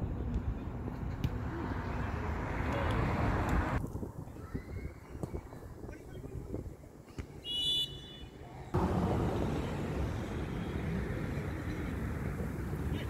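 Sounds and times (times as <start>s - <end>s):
referee's whistle blast: 7.5s - 8.3s.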